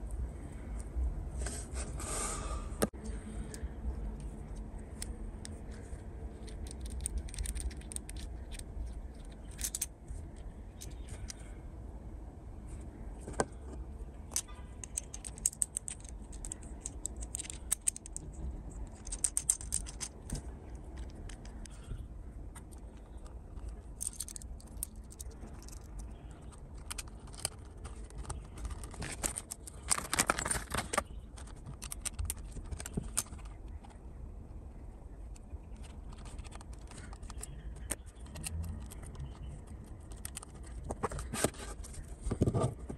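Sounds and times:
hex key scraping screw: 0:06.3 - 0:11.4, 0:14.3 - 0:22.0, 0:35.8 - 0:41.8.

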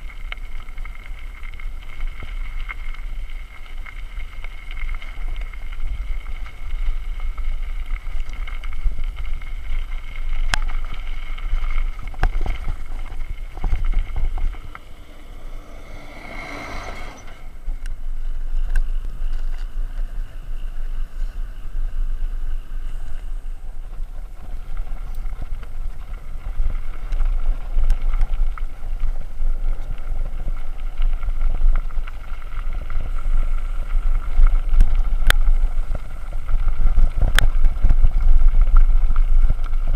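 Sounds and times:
bike tyres rumbling on gravel: 0:00.0 - 0:19.8, 0:20.5 - 0:39.9
wind on microphone: 0:11.0 - 0:19.6.

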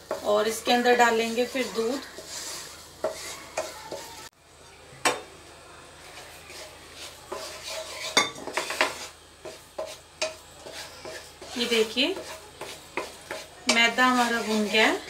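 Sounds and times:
wooden spatula scraping pan: 0:00.0 - 0:04.3, 0:06.0 - 0:15.0
faint sizzle: 0:00.0 - 0:15.0
spatula knocking against pan: 0:08.2 - 0:10.4.

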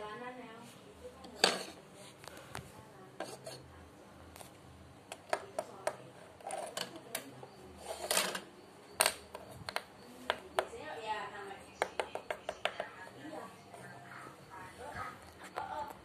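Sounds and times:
plastic bricks clicking on table: 0:05.1 - 0:10.7, 0:11.8 - 0:12.9.

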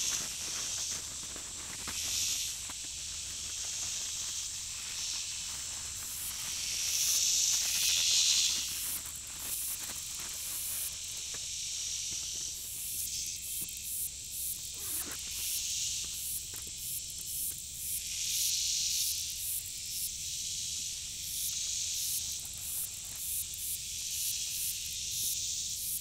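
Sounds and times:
high-pitched insect buzzing: 0:12.8 - 0:19.6.

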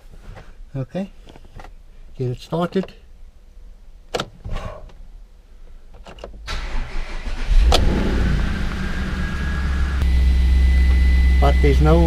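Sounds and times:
car engine starting and idling: 0:06.1 - 0:12.0.

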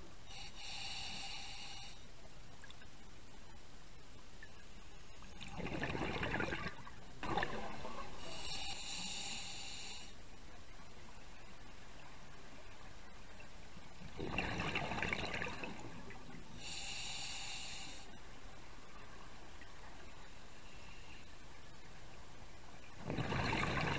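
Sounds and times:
diver breathing through regulator: 0:00.3 - 0:02.1, 0:08.2 - 0:10.2, 0:16.6 - 0:18.1.

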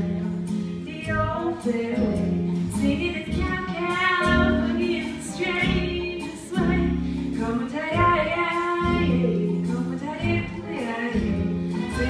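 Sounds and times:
instrumental accompaniment: 0:00.0 - 0:12.0
person singing: 0:02.8 - 0:12.0.

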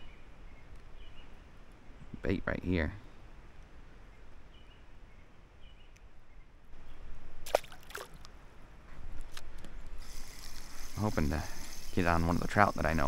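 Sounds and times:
steady hiss: 0:09.7 - 0:13.0.

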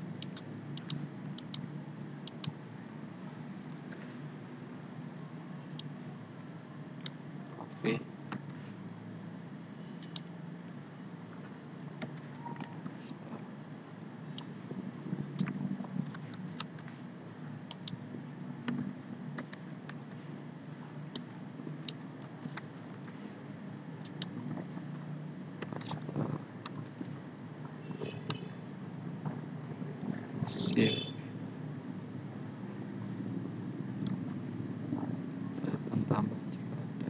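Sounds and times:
steady low hum: 0:00.0 - 0:37.0
mouse clicks: 0:00.2 - 0:01.6, 0:02.2 - 0:02.6, 0:10.0 - 0:10.3.

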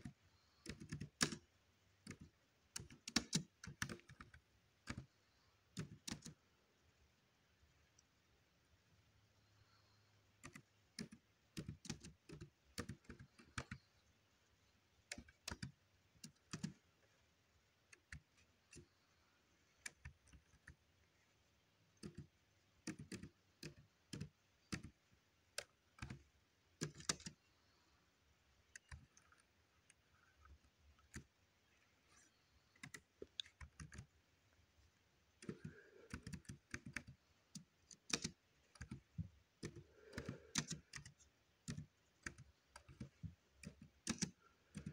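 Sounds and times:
laptop keystroke clicks: 0:00.0 - 0:05.1, 0:05.7 - 0:06.4, 0:10.4 - 0:13.8, 0:15.1 - 0:16.8, 0:22.0 - 0:26.2, 0:26.8 - 0:27.4, 0:32.8 - 0:34.1, 0:35.4 - 0:44.9.

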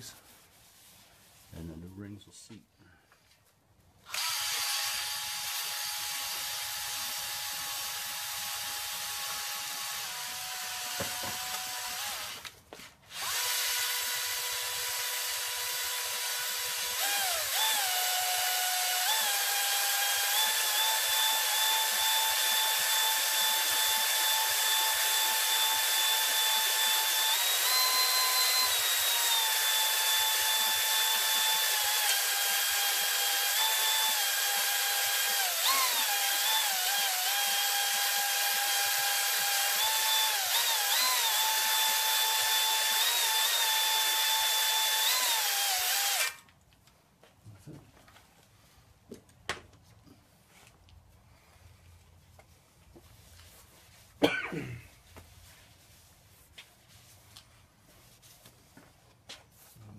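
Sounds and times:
electric drill whining: 0:04.0 - 0:46.4.

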